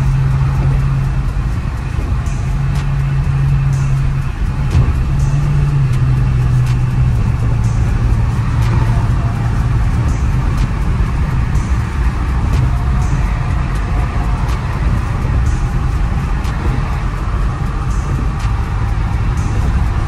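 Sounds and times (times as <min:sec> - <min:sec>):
car cabin road and engine drone: 0:00.0 - 0:20.0.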